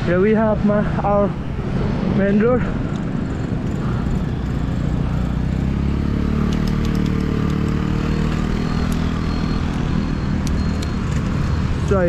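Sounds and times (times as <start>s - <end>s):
vehicle engine running: 2.7s - 12.0s.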